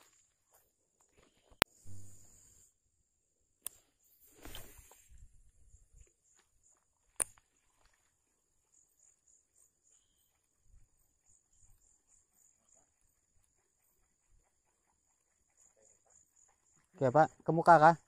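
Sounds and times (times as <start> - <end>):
insect chirping: 0.0 - 18.0
sharp click: 7.2 - 7.4.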